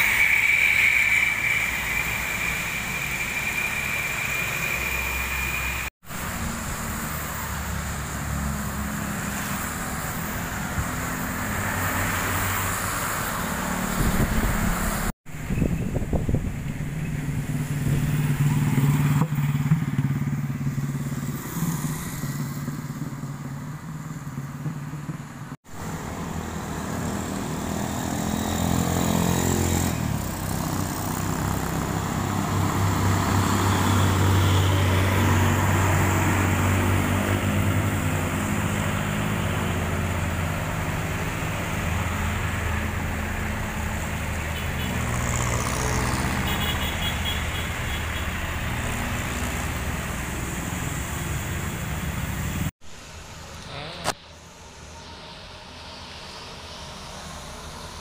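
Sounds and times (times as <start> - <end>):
motorcycles passing: 0.0 - 52.7
truck diesel engines: 0.0 - 58.0
tyre hiss on wet road: 49.4 - 58.0.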